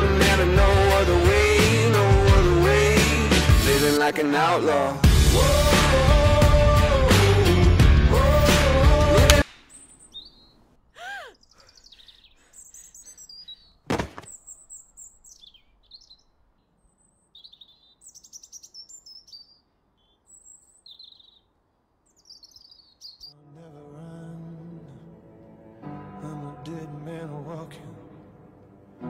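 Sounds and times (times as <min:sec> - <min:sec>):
songbirds singing and chirping: 0:08.3 - 0:23.4
low rising and falling bird call: 0:09.4 - 0:23.4
loud thump: 0:13.9 - 0:14.3.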